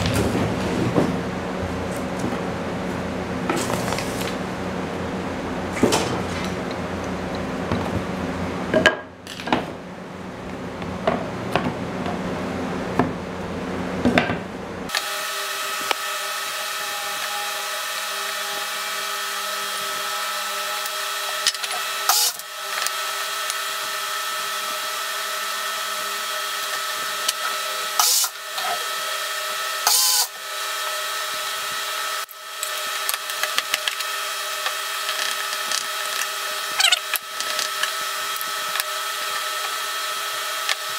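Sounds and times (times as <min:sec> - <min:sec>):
machine drone: 0:14.6 - 0:40.9.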